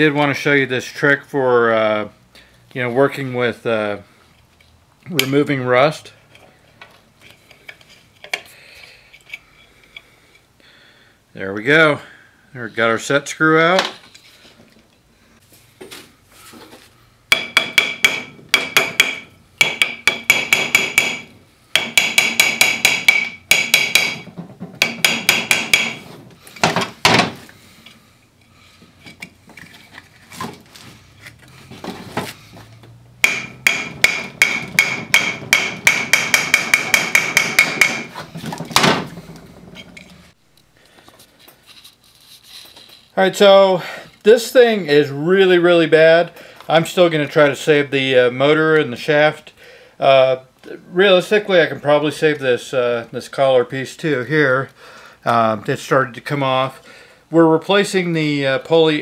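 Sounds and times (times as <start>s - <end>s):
hammer tapping on metal: 17.3s - 26.0s, 33.2s - 38.1s.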